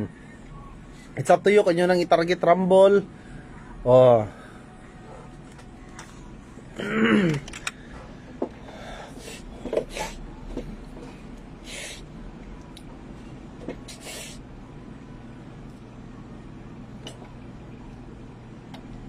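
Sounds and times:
short breathy hisses: 11.6 - 12.1, 13.9 - 14.4.

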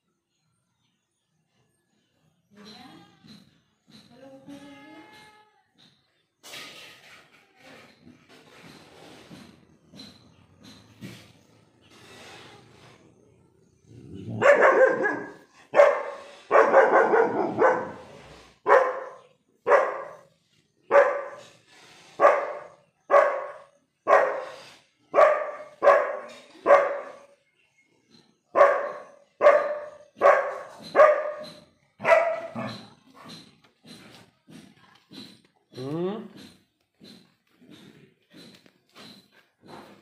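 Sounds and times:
puppy barking: 14.3 - 20.3, 20.9 - 21.5, 22.2 - 27.3, 28.5 - 32.9.

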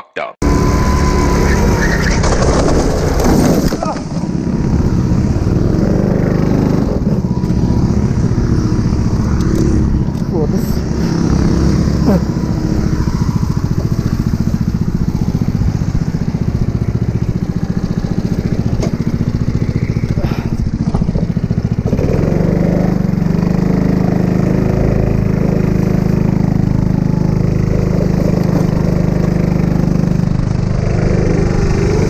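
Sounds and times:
go-kart engine idling: 0.4 - 32.0
go-kart engine under throttle: 0.4 - 32.0.

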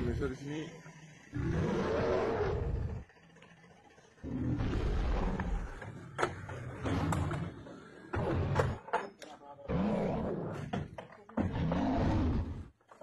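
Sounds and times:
animatronic dinosaur roaring: 1.2 - 3.4, 4.2 - 8.9, 9.6 - 12.8.

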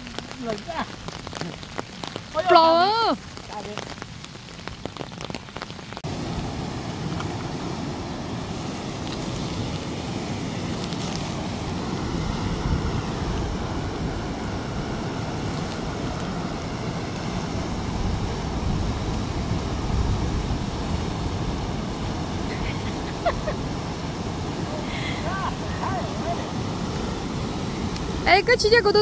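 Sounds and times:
roar of churning water: 6.0 - 28.7
wind buffeting microphone: 6.0 - 29.0.

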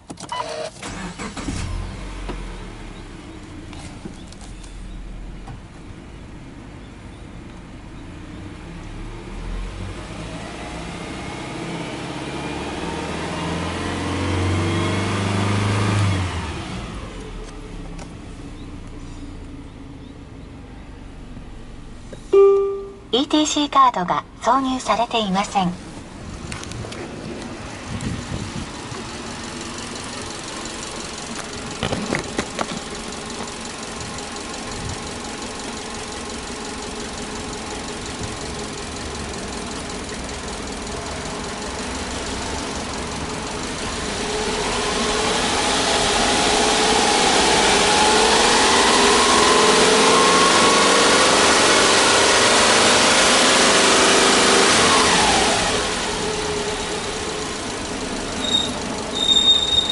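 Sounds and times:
car engine idling: 0.0 - 14.5, 16.4 - 23.6, 24.2 - 59.9
rushing noise with high squealing: 58.4 - 59.9.

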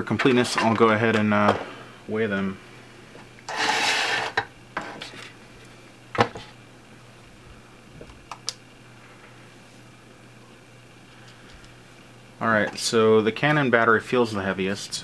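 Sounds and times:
plastic packs scraping across board: 3.5 - 5.1.

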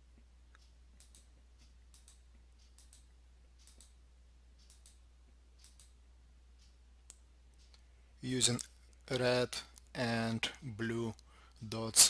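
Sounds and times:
low steady hum: 0.0 - 12.0
faint mouse clicks: 0.2 - 4.0, 4.6 - 5.0, 5.6 - 6.0.

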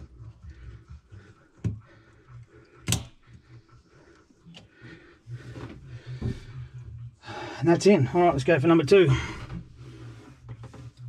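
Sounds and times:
plastic fitting clicks and knocks: 2.8 - 3.2.

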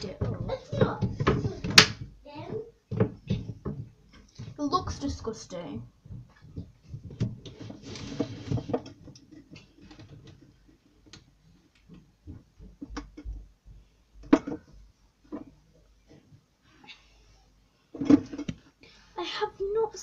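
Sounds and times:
rustling: 0.0 - 12.9
light clicks and knocks: 6.0 - 16.4.

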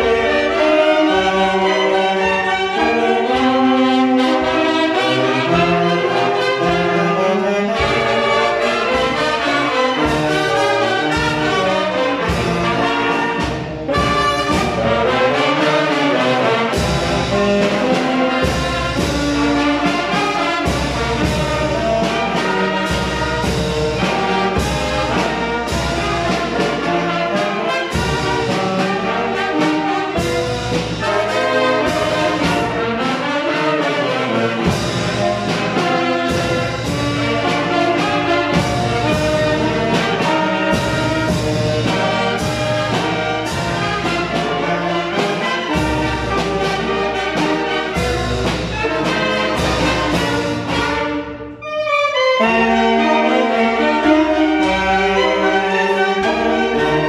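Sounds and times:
brass band playing: 0.0 - 57.0
bass drum and snare beat: 34.6 - 51.2.

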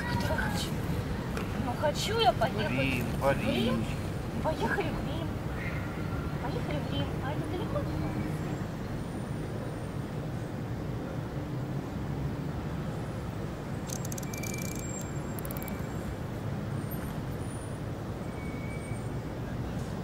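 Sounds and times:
traffic rumble: 0.0 - 20.0
faint clicks: 13.8 - 15.8.

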